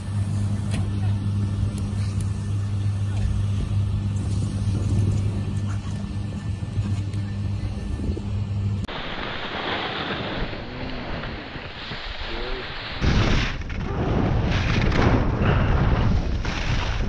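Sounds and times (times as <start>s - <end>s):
wind buffeting microphone: 0.9s - 17.0s
steady hiss: 8.9s - 13.3s
snowboard sliding on snow: 8.9s - 17.0s.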